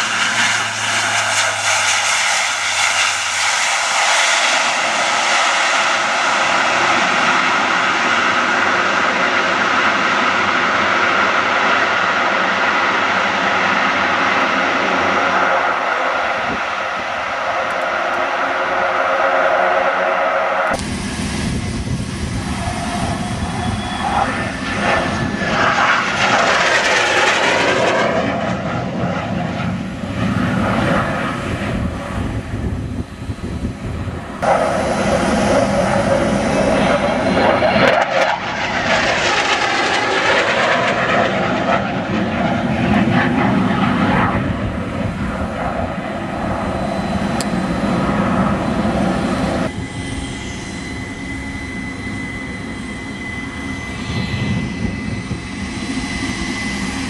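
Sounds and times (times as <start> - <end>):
fighter jet engines passing overhead: 0.0 - 57.0
jet whoosh: 15.2 - 32.7, 34.2 - 57.0.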